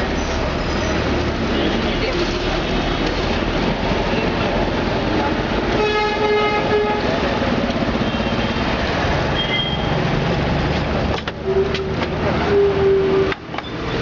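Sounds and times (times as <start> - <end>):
street traffic noise: 0.0 - 14.0
vehicle horn: 5.8 - 7.2.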